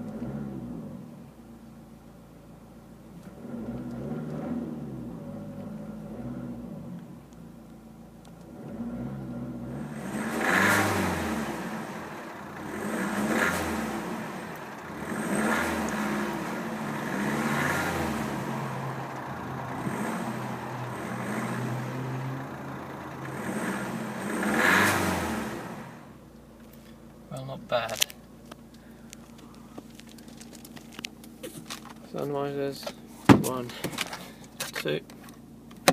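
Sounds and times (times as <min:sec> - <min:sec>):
car engine idling and revving: 0:00.0 - 0:35.9.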